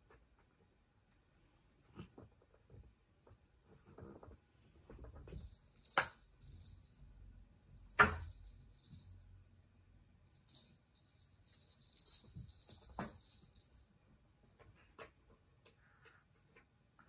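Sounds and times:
small jingle bell jingling: 5.1s - 15.0s.

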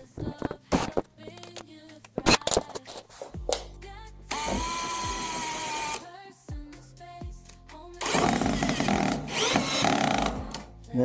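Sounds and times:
cordless drill whining: 4.3s - 6.0s, 8.0s - 10.7s
drill driving screw into wood: 4.3s - 6.0s, 8.0s - 10.7s.

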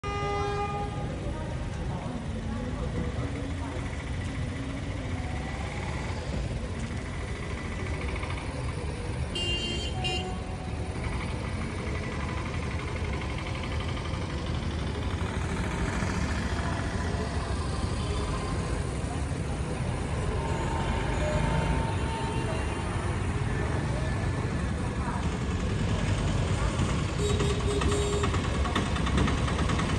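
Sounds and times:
road traffic: 0.0s - 29.9s
car horn toot: 9.4s - 10.4s, 27.2s - 28.3s.

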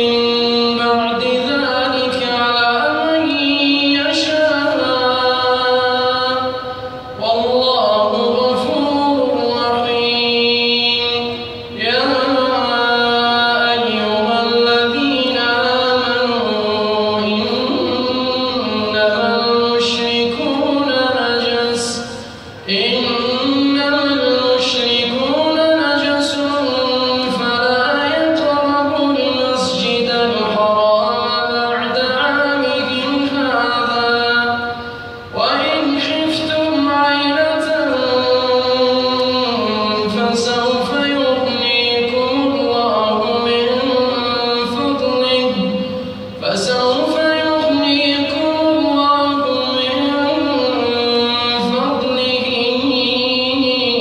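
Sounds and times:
man chanting melodically: 0.0s - 54.0s.

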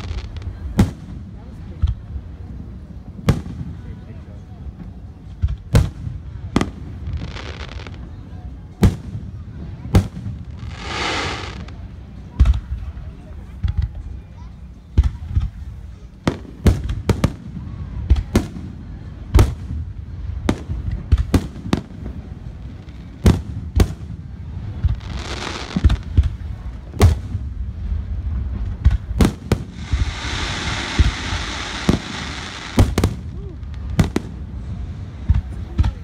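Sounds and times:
fireworks hissing: 6.6s - 8.0s, 10.0s - 11.9s, 24.6s - 26.3s, 29.2s - 35.7s
fireworks booming: 8.7s - 12.8s, 16.2s - 36.0s.

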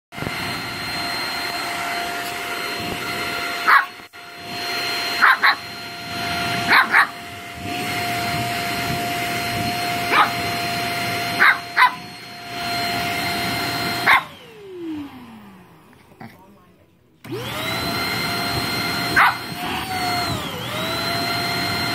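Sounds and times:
vacuum cleaner motor whine: 0.1s - 16.0s, 17.2s - 21.9s
puppy barking: 3.6s - 4.0s, 5.1s - 5.8s, 6.5s - 7.2s, 10.0s - 10.6s, 11.3s - 12.1s, 14.0s - 14.4s, 19.0s - 19.6s.

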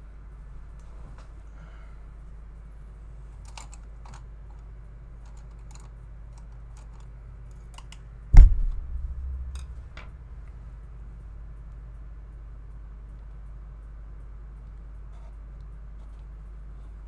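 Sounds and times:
small tools clicking and tapping: 5.2s - 8.0s.

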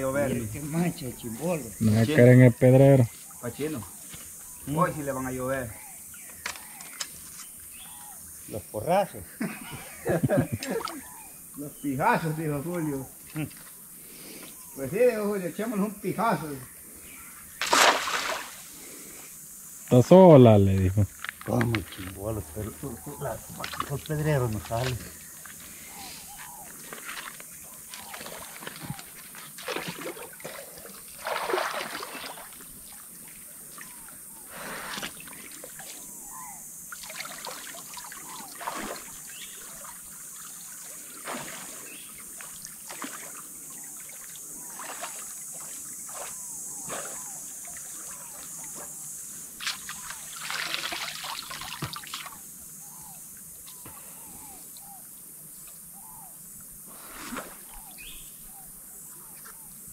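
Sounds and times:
shallow river trickling: 0.0s - 59.7s
people splashing in water: 17.6s - 18.7s, 22.1s - 25.1s, 26.9s - 33.0s, 36.9s - 49.0s, 49.6s - 52.4s.

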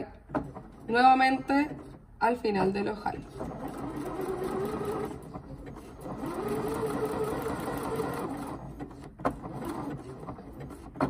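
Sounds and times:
sewing machine motor: 3.1s - 11.0s.

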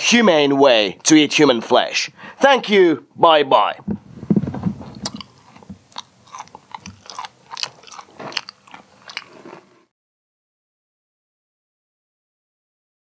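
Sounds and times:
low muffled sound: 3.1s - 5.8s
person chewing: 4.8s - 9.9s.

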